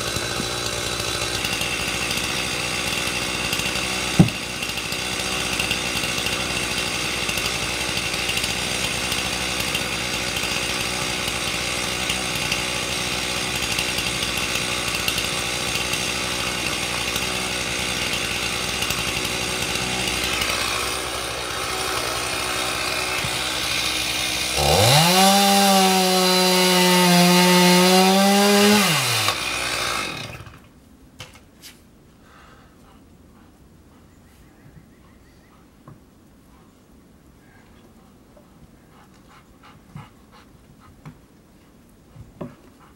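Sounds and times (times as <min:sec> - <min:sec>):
chainsaw running and revving: 0:00.0 - 0:30.6.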